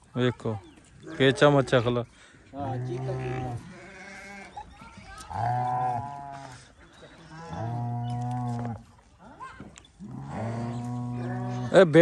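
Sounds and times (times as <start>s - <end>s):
cows mooing: 2.6s - 4.5s, 5.3s - 6.6s, 7.2s - 8.8s, 10.0s - 12.0s.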